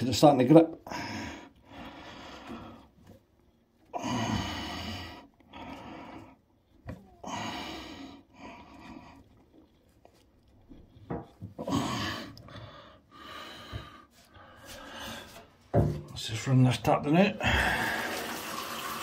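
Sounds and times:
man breathing hard: 0:00.8 - 0:03.0, 0:03.9 - 0:06.5, 0:07.2 - 0:09.3, 0:11.6 - 0:15.6, 0:17.4 - 0:18.4.

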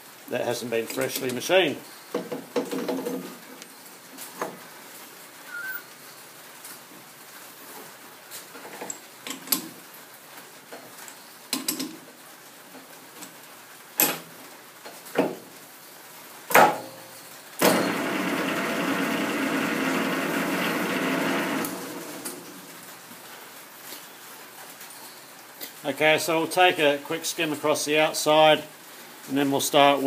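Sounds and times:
lathe spindle humming: 0:17.8 - 0:22.2.

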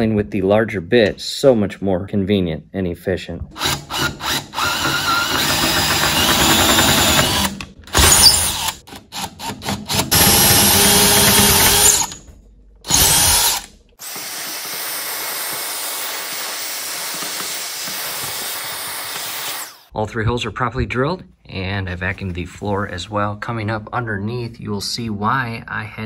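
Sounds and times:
power drill boring wood: 0:03.6 - 0:12.2, 0:12.9 - 0:19.9
vacuum cleaner running: 0:14.0 - 0:19.8.

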